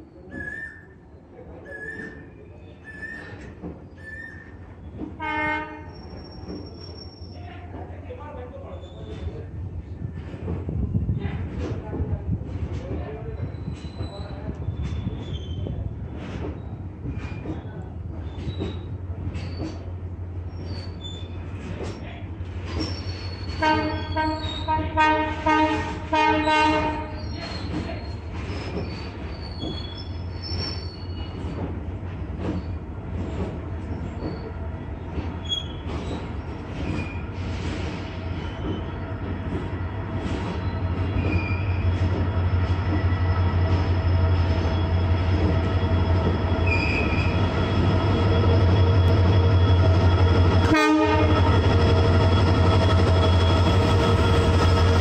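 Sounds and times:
locomotive horn blasts: 0:05.2 - 0:05.9, 0:23.6 - 0:27.1, 0:50.6 - 0:51.6.

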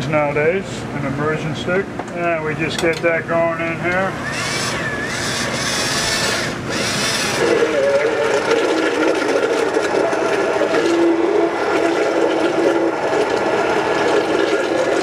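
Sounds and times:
stick blender motor droning: 0:04.0 - 0:15.0.

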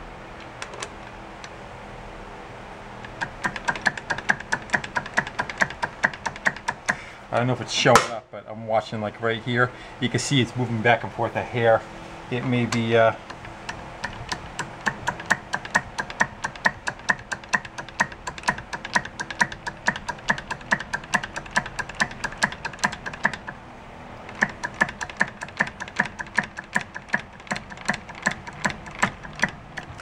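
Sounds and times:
socket ratchet clicking: 0:03.0 - 0:07.0, 0:12.8 - 0:23.6, 0:24.2 - 0:30.0.

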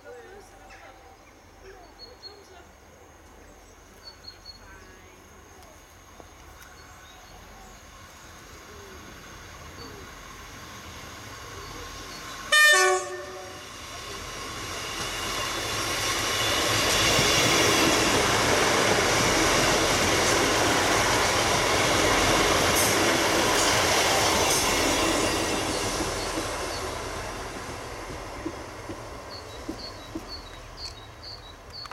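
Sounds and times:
train passing: 0:00.0 - 0:31.9
train horn blast: 0:12.5 - 0:13.7.

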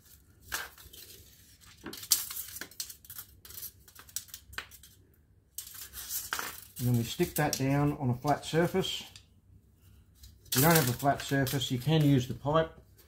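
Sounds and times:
paper backing tearing: 0:10.4 - 0:12.3.

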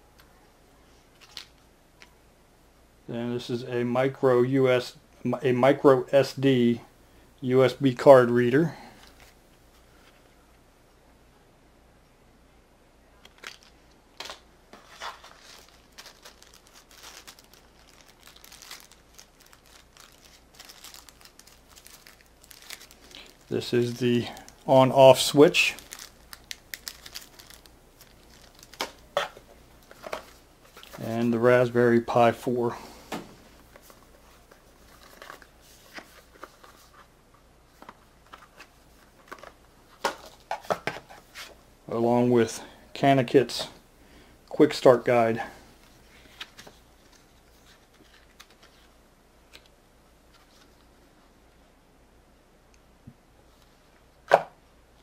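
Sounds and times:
plastic bag crinkling: 0:13.3 - 0:31.1.

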